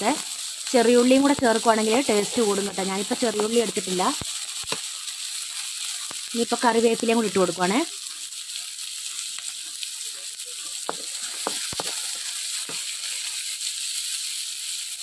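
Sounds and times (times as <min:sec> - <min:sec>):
vegetables sizzling in hot oil: 0:00.0 - 0:15.0
spatula knocking against pan: 0:10.9 - 0:12.0.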